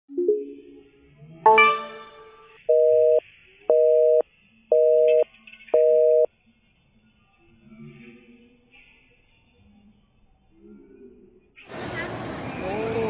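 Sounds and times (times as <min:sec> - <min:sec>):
bright ringing note: 0:01.5 - 0:02.5
telephone busy signal beeps: 0:05.8 - 0:06.3.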